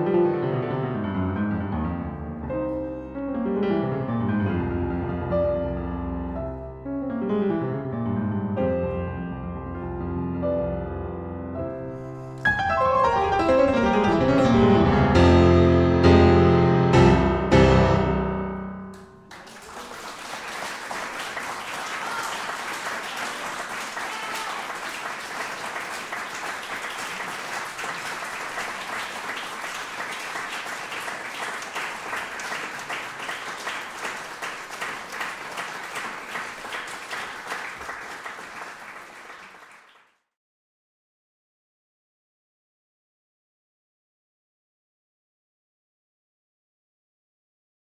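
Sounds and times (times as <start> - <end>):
grand piano chords: 0.0 - 19.4
audience applauding: 18.9 - 40.2.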